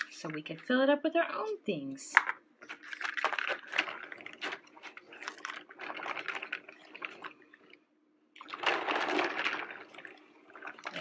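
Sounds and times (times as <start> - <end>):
rustling: 2.6 - 7.8.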